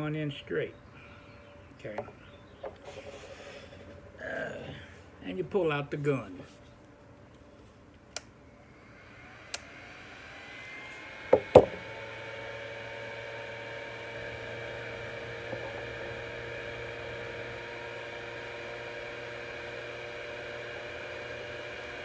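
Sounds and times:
heat gun blowing: 0:08.6 - 0:22.0
sharp knocks: 0:11.3 - 0:11.8.

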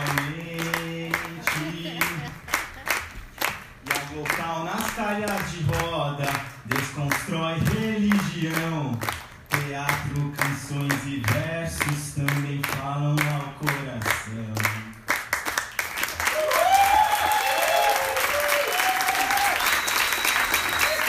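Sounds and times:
rhythmic hand clapping: 0:00.0 - 0:21.0
audience applause and cheers: 0:15.2 - 0:21.0.

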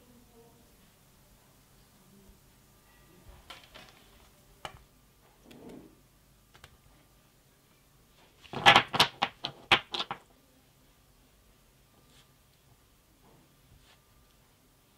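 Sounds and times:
soft rustle: 0:11.9 - 0:14.6.

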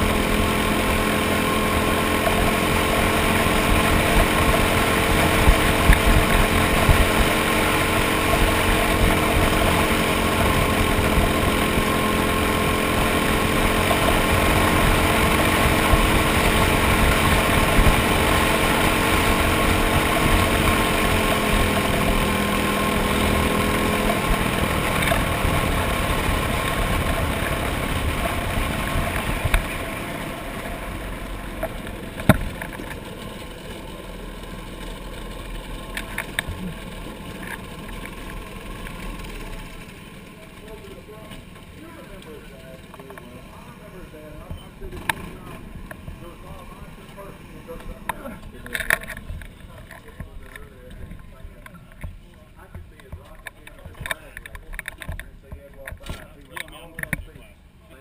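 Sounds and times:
kart engine running: 0:00.0 - 0:58.0.

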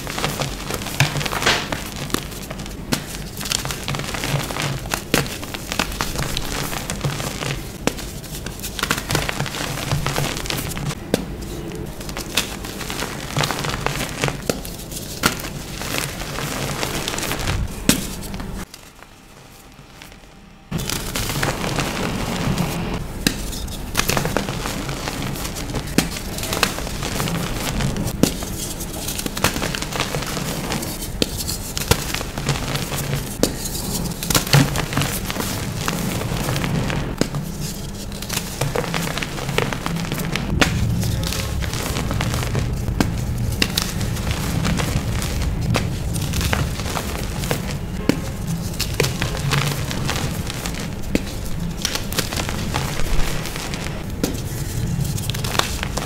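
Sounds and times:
chalk block cracking: 0:00.0 - 0:19.2
chalk crumbling by hand: 0:00.0 - 0:56.0.

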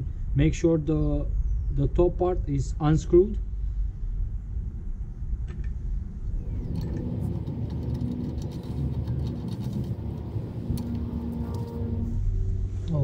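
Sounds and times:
motor vehicle rumble: 0:03.4 - 0:13.0.

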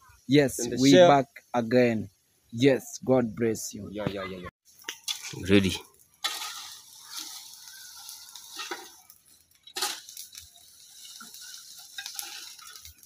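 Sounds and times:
dry leaves and twigs crunching: 0:04.7 - 0:13.0
shovel scooping debris: 0:06.2 - 0:09.0.

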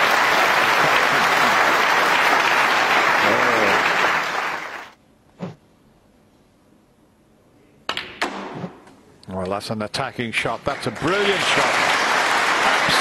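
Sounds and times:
audience applauding: 0:00.0 - 0:05.0, 0:10.7 - 0:13.0.

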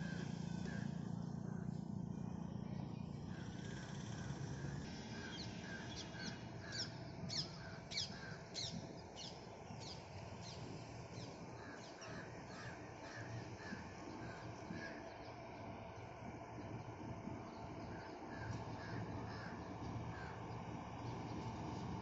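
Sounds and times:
crows cawing: 0:00.0 - 0:01.8, 0:03.3 - 0:08.8, 0:11.4 - 0:15.4, 0:17.9 - 0:20.6
birds calling: 0:00.0 - 0:22.0
low steady rumble: 0:00.0 - 0:22.0.

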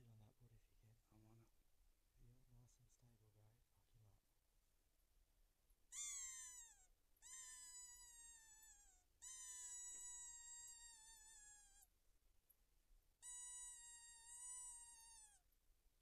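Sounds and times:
high-pitched whining predator calls: 0:05.9 - 0:11.9, 0:13.2 - 0:15.4.

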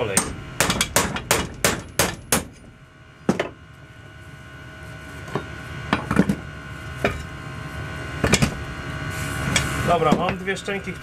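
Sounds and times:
hammer striking punch: 0:00.2 - 0:02.6.

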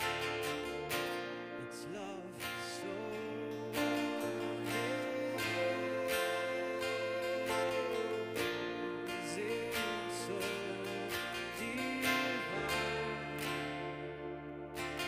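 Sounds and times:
strummed acoustic guitar chords: 0:00.0 - 0:15.0.

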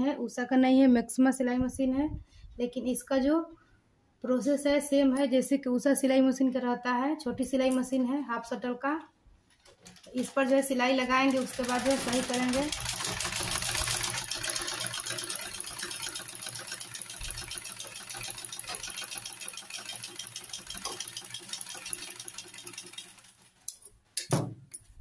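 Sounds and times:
sewing machine stitching: 0:09.6 - 0:23.8.

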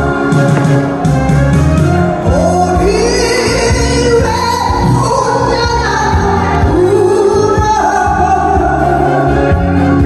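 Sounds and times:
backing track with steady beat: 0:00.0 - 0:10.0
woman singing into microphone: 0:02.2 - 0:10.0.

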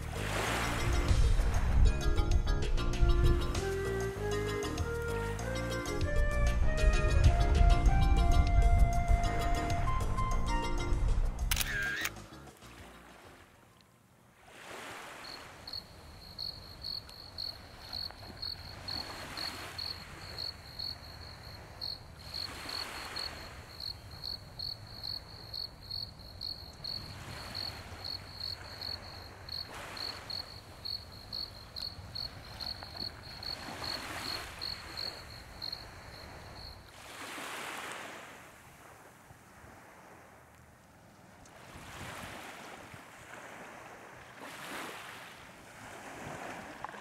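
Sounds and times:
waves washing onto shore: 0:00.0 - 0:01.9, 0:14.4 - 0:47.0
cricket chirping: 0:15.1 - 0:37.4.

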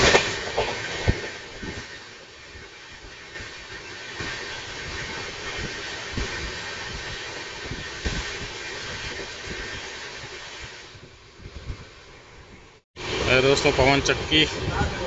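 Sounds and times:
wheels knocking on rail joints: 0:00.0 - 0:11.8
rush of air and wheel noise: 0:00.0 - 0:15.0.

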